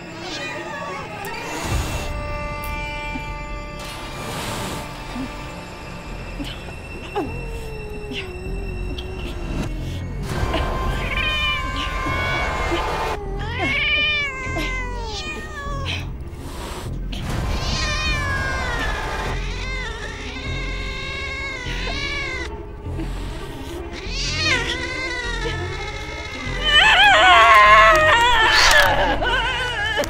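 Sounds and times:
cat meowing and yowling: 0.0 - 1.7, 10.8 - 16.1, 17.5 - 22.5, 23.9 - 30.0
low droning music: 0.0 - 30.0.

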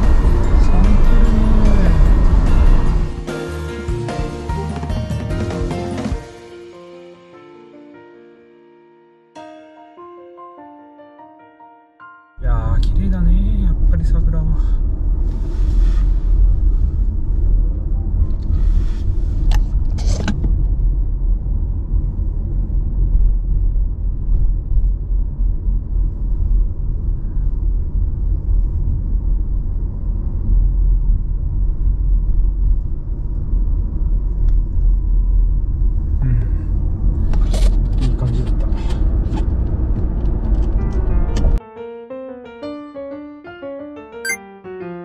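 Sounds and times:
car road and engine rumble: 0.0 - 6.3, 12.4 - 41.6.

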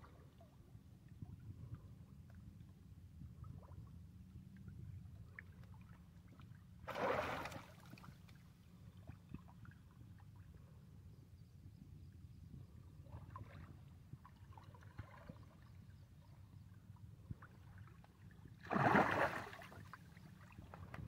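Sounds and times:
low steady rumble: 0.0 - 6.9
fish splashing in water: 6.9 - 7.9, 18.6 - 19.6.

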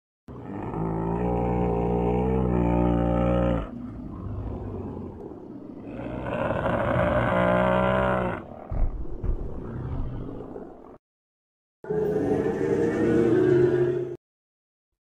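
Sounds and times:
dinosaur roar: 0.3 - 10.9
low growl: 0.3 - 11.0.

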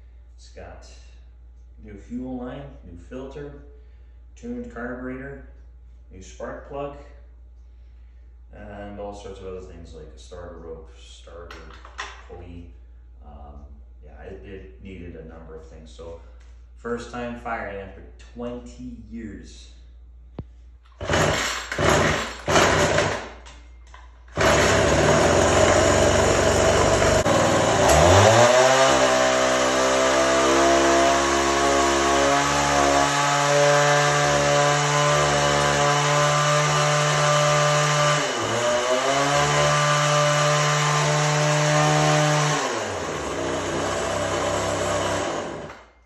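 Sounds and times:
starter cord pull: 20.9 - 25.9
small two-stroke engine revving: 21.0 - 23.4, 24.2 - 45.9.

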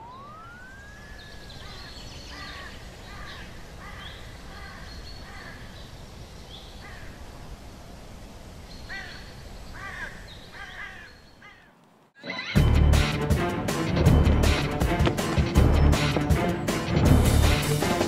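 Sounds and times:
gliding pitched tone: 0.0 - 1.8
birds calling: 0.0 - 7.3, 8.6 - 12.8, 14.0 - 18.0
steady background hiss: 0.0 - 12.1.

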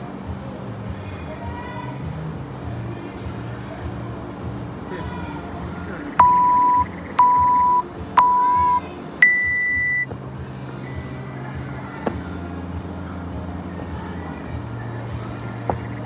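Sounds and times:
long high-pitched beep: 6.2 - 10.1
short timer beeps: 6.2 - 10.1.

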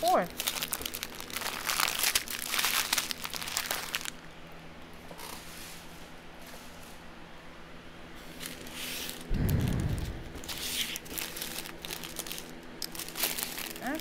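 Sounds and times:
plastic bags crinkling: 0.0 - 4.3, 8.4 - 14.0.

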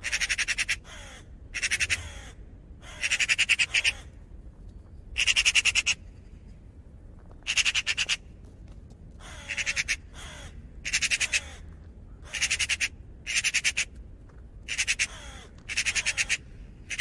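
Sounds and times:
raven calling: 0.0 - 4.2, 5.2 - 6.1, 7.4 - 8.3, 9.2 - 14.0, 14.6 - 17.0.

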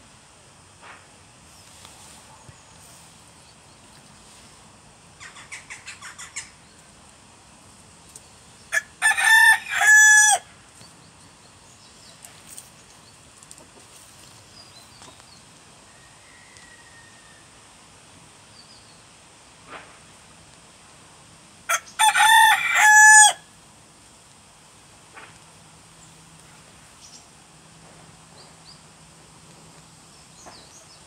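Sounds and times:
rooster crowing: 8.7 - 10.5, 15.9 - 17.5, 21.7 - 23.5.

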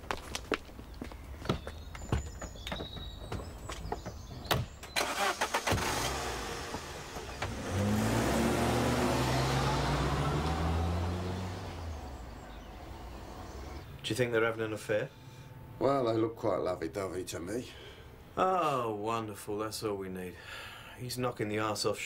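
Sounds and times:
car doors shutting: 4.0 - 11.8
car engine starting and running: 4.8 - 14.0.

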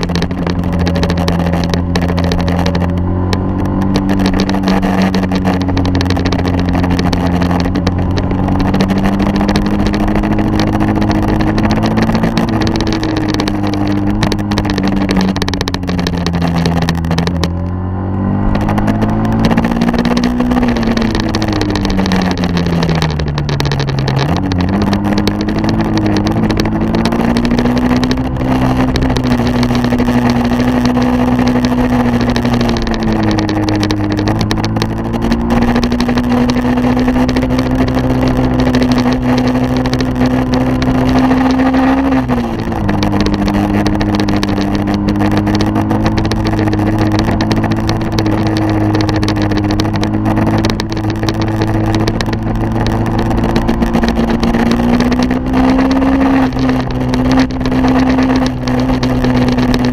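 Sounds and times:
vehicle engine running: 0.0 - 59.9
wind and road noise: 0.0 - 59.9.

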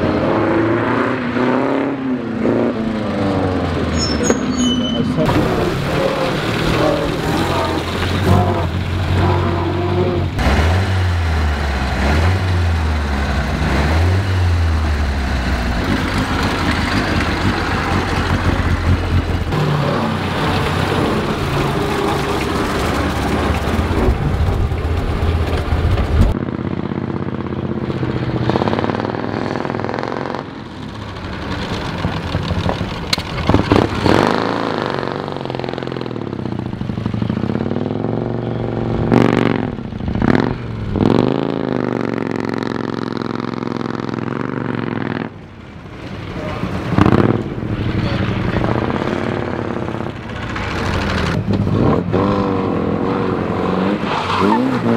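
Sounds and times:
three-wheeler engine revving: 0.0 - 54.9
vintage car engine running: 14.4 - 29.8, 30.4 - 52.9.

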